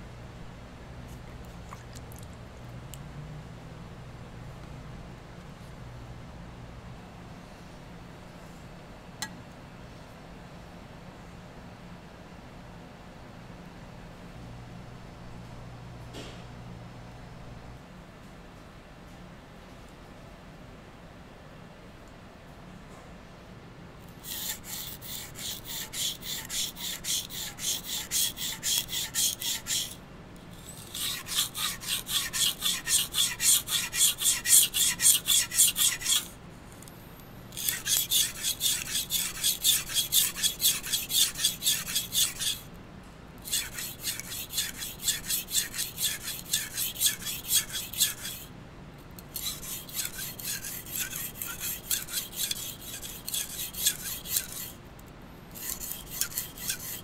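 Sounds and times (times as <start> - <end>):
knife scraping on whetstone: 24.2 - 36.4, 37.5 - 42.7, 43.4 - 48.5, 49.2 - 54.8, 55.6 - 57.0.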